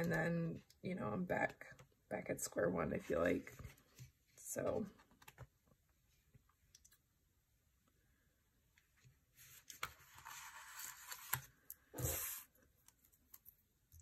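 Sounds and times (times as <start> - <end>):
paper rustling and sliding: 9.4 - 12.6.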